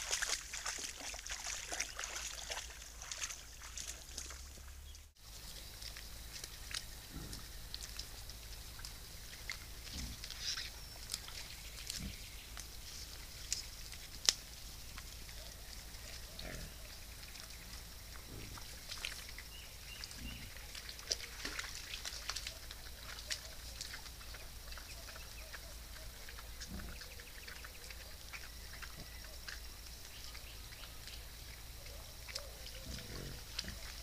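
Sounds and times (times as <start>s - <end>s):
vegetation crackling and rustling: 0.0s - 31.2s
wild boars grunting: 7.0s - 8.2s, 9.3s - 11.2s, 15.0s - 21.7s, 22.4s - 29.6s, 31.5s - 34.0s.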